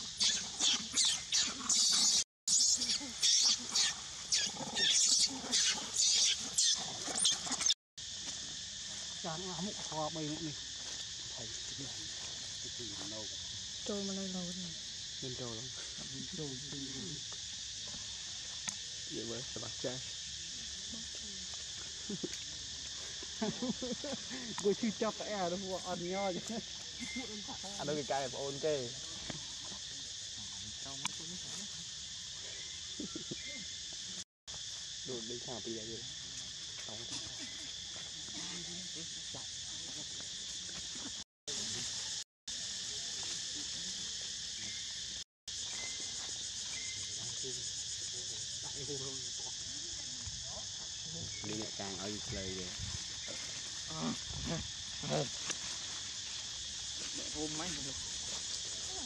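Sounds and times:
insects droning: 0.0s - 59.0s.

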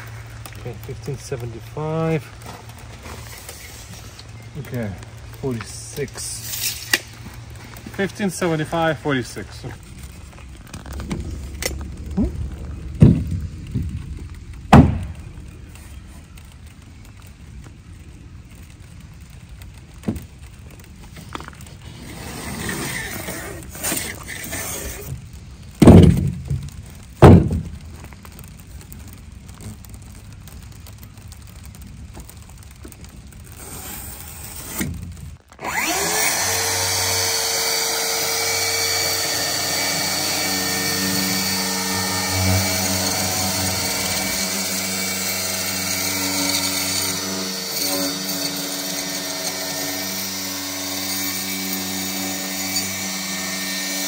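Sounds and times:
circular saw cutting foam board: 21.9s - 25.2s, 33.6s - 35.0s, 35.6s - 54.0s.

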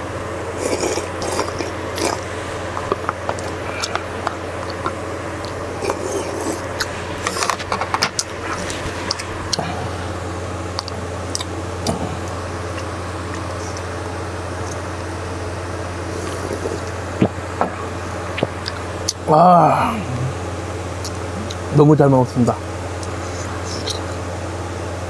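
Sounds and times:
steady low hum: 0.0s - 25.0s
slurping broth: 0.6s - 10.2s, 16.1s - 17.0s
chewing: 0.6s - 13.9s, 16.1s - 17.4s, 18.4s - 19.2s.

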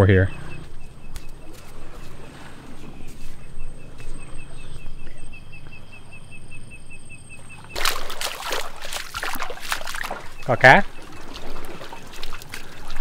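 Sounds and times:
bare feet walking in mud: 0.6s - 4.3s, 7.6s - 13.0s
foot splashing in shallow water: 7.4s - 13.0s.

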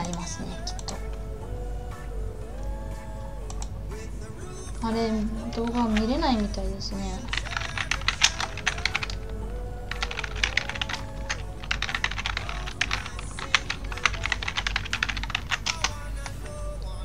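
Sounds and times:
background music: 0.0s - 17.0s
typing on computer keyboard: 7.2s - 16.6s.

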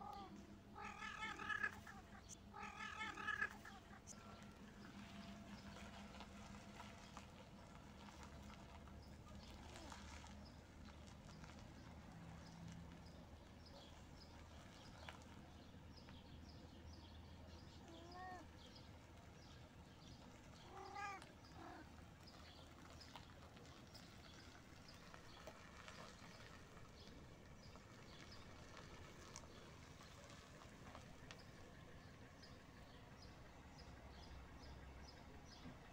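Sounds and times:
cat meowing: 0.0s - 4.3s, 17.8s - 18.5s, 20.6s - 21.8s.

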